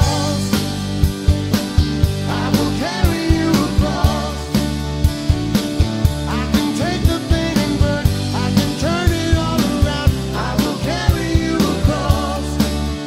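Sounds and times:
song with sung vocal: 0.0 - 0.8, 2.2 - 4.7, 6.3 - 13.0
steady drum beat: 0.0 - 13.0.

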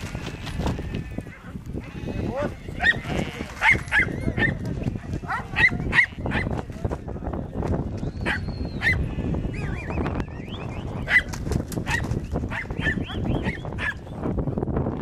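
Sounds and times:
dogs barking: 2.8 - 4.6, 5.2 - 6.6, 8.2 - 9.0, 11.0 - 14.1.

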